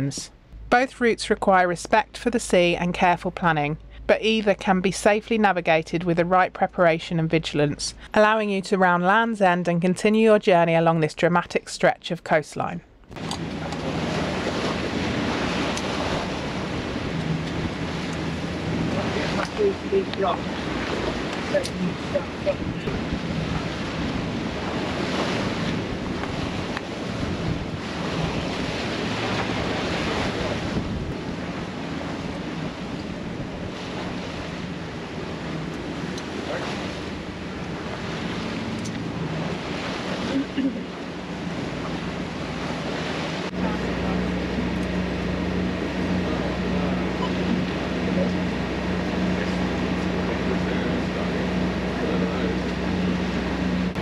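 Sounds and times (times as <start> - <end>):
diesel engine running: 13.1 - 54.0
sea water rushing: 13.1 - 54.0
wind buffeting microphone: 13.1 - 54.0.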